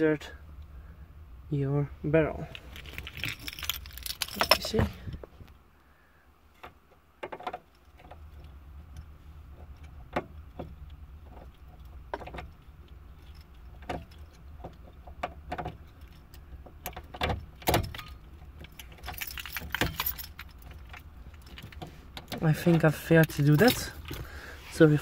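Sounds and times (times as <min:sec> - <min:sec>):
metal clicks and rattles of lock cylinder: 0:02.5 - 0:04.8, 0:12.2 - 0:24.2.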